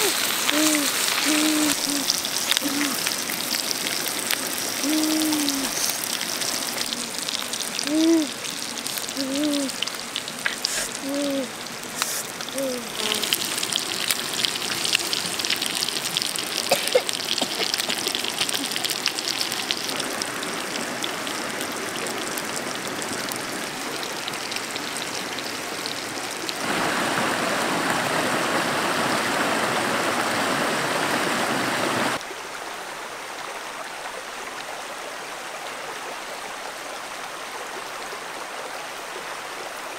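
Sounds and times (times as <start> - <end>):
person making short voiced sounds: 0.0 - 3.2, 4.8 - 6.0, 7.8 - 8.4, 9.0 - 9.8, 10.6 - 13.5
fish sizzling and crackling: 0.0 - 21.7
rushing water: 0.0 - 39.9
shallow stream flowing: 0.0 - 39.9.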